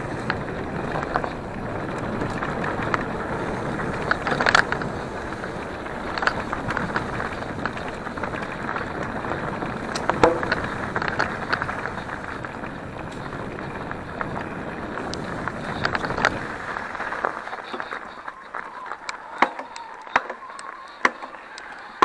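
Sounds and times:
bike rattling and clicking: 0:00.0 - 0:22.0
bike tyre noise on dirt trail: 0:00.0 - 0:22.0.

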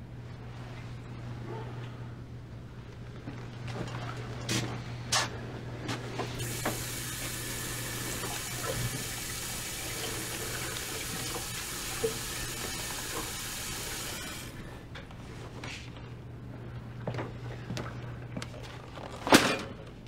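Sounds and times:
tap water running: 0:06.4 - 0:14.6.

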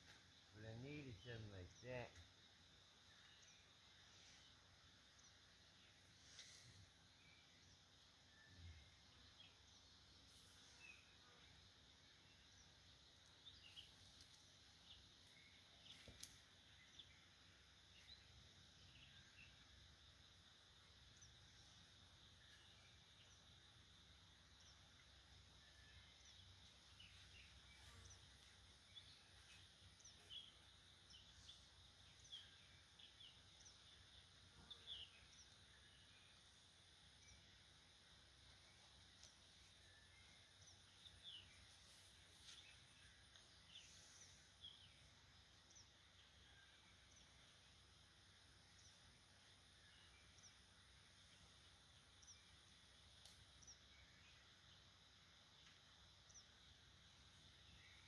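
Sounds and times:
birds chirping: 0:00.3 - 0:58.0
faint clicks: 0:16.0 - 0:16.4, 0:53.1 - 0:53.6.

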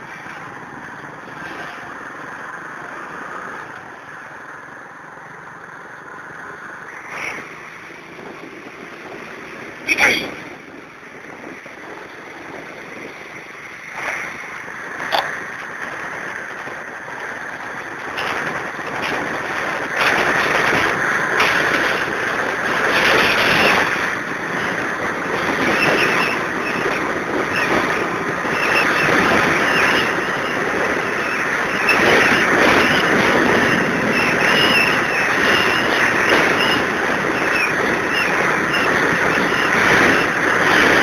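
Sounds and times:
vehicle engine and tyre noise: 0:00.0 - 0:41.0
wind over microphone: 0:00.0 - 0:41.0.

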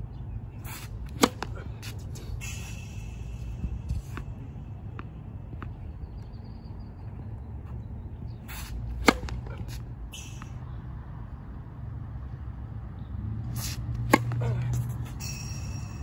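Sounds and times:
low outdoor rumble: 0:00.0 - 0:16.0
tennis racket hitting ball: 0:01.0 - 0:02.1, 0:08.6 - 0:09.8, 0:13.6 - 0:15.2.

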